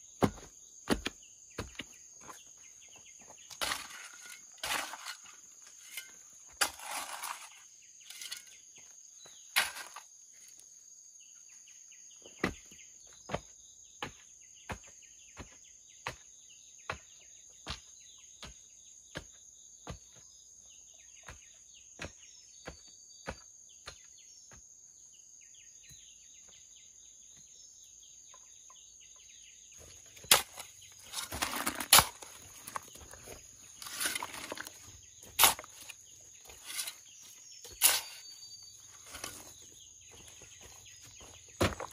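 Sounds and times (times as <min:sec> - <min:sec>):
hoe scraping soil: 0:02.3 - 0:10.6, 0:29.8 - 0:41.9
even knocks on earth: 0:41.1 - 0:41.9.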